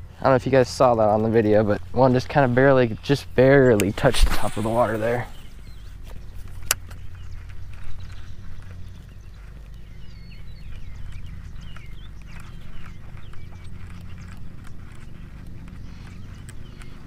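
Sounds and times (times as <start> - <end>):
chirping bird calls: 0.0 - 17.0
steady low rumble: 0.0 - 17.0.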